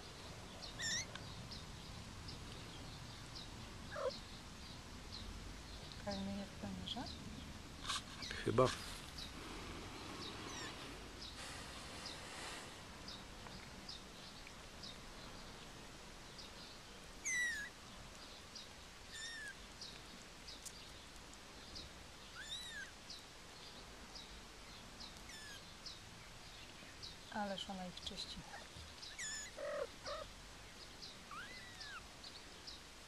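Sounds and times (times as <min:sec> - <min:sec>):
kittens mewing: 0:00.8 - 0:01.2, 0:03.9 - 0:04.2, 0:10.5 - 0:10.8, 0:17.2 - 0:17.7, 0:19.1 - 0:19.5, 0:25.3 - 0:25.6, 0:29.1 - 0:30.3, 0:31.3 - 0:32.1.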